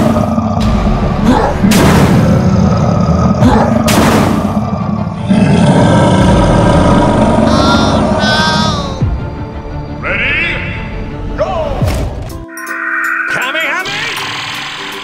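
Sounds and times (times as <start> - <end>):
monster roaring and grunting: 0.0 - 9.1
background music: 0.0 - 15.0
loud booming hits: 0.6 - 2.9, 3.7 - 4.8.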